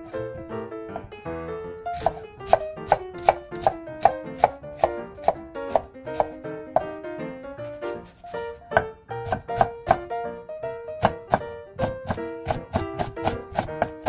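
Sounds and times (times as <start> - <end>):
background music: 0.0 - 14.0
knife chopping on wooden board: 1.9 - 7.0, 8.0 - 10.1, 11.0 - 14.0.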